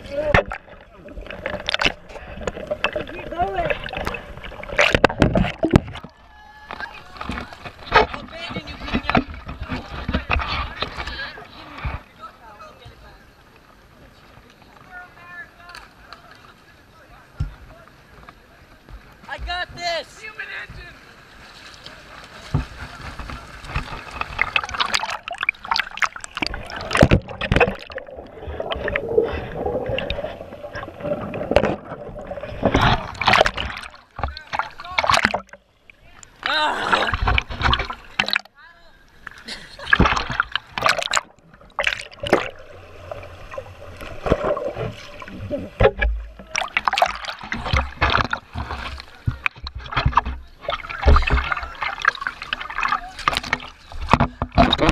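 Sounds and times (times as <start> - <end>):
low watery thumps: 0.0 - 12.1, 22.3 - 38.6, 39.2 - 54.9
pool water splashing: 0.0 - 54.9
muffled underwater gurgling: 23.3 - 38.5.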